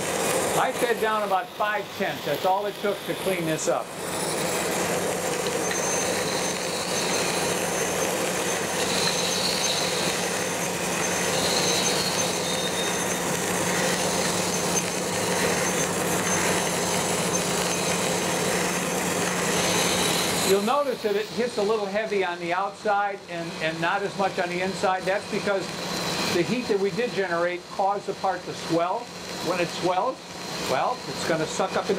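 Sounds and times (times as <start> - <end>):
grinder motor humming: 0.0 - 31.9
wheel grinding metal hissing: 0.0 - 31.9.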